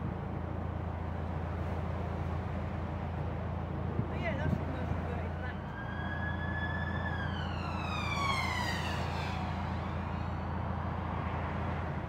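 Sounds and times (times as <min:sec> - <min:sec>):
traffic noise: 0:00.0 - 0:12.0
emergency vehicle siren: 0:05.3 - 0:11.9.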